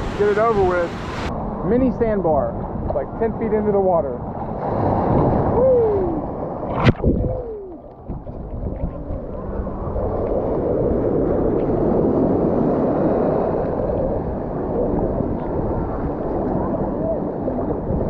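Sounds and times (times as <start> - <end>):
muffled water sloshing: 4.2 - 18.0
sharp splash: 6.6 - 9.2.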